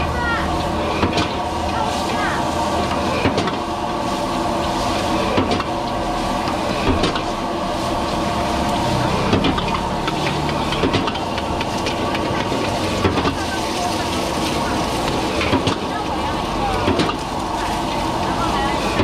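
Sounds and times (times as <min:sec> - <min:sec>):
gas burner roaring: 0:00.0 - 0:19.0
oil sizzling in a wok: 0:03.9 - 0:05.2, 0:05.8 - 0:16.6.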